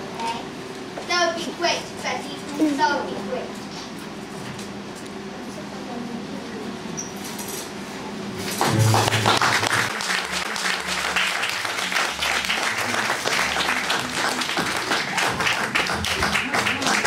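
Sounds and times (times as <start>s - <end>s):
audience applauding: 8.5s - 17.0s.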